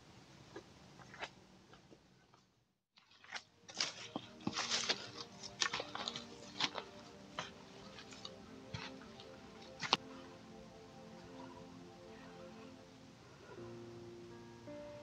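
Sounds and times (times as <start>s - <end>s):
footsteps crunching on leaves: 3.0s - 10.8s.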